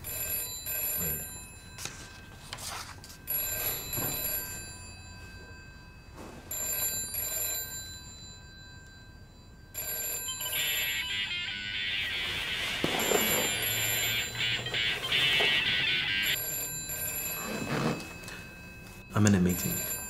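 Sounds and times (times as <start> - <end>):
mobile phone ringing: 0.0 - 20.0
busy melodic ringtone tune: 6.6 - 20.0.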